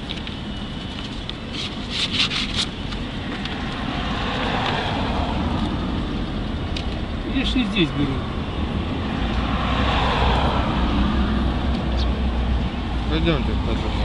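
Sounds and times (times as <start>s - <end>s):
street traffic rumble: 0.0s - 14.0s
paper rustling: 1.0s - 3.0s
vehicle passing: 3.2s - 14.0s.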